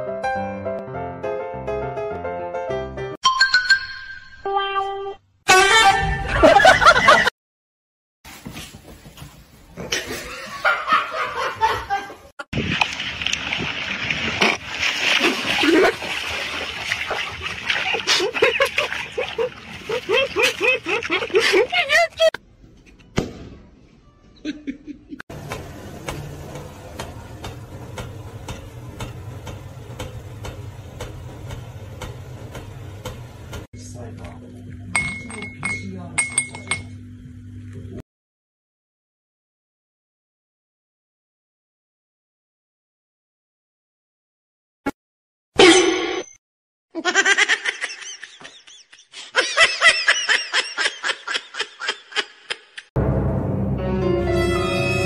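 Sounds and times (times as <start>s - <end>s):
music: 0.0s - 3.2s, 23.0s - 24.4s, 53.0s - 55.0s
person laughing hard: 6.2s - 7.3s, 17.9s - 22.4s, 24.4s - 25.2s, 47.0s - 52.9s.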